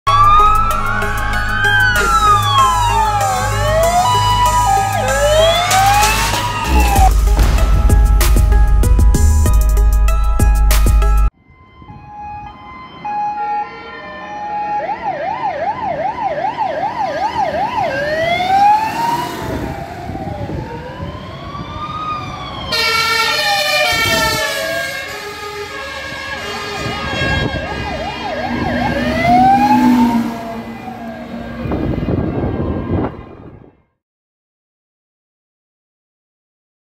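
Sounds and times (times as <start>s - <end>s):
fire engine sirens: 0.1s - 9.0s, 11.3s - 33.8s
truck engines rumbling: 0.1s - 11.3s, 12.0s - 33.7s
horn blast: 4.8s - 10.4s, 22.8s - 32.0s.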